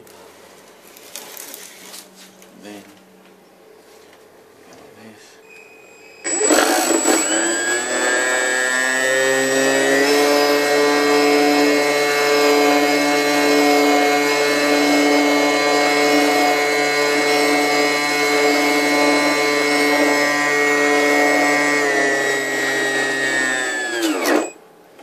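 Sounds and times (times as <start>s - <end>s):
electric motor whine: 6.2s - 24.6s.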